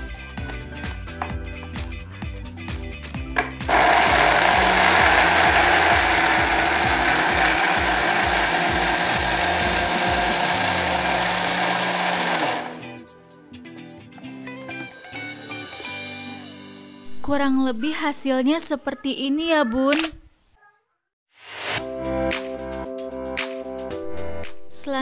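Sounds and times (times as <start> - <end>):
electric blender running: 3.4 - 13.0.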